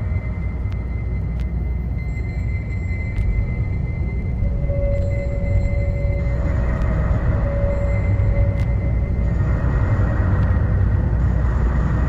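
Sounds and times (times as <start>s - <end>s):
dense low rumble: 2.9s - 12.0s.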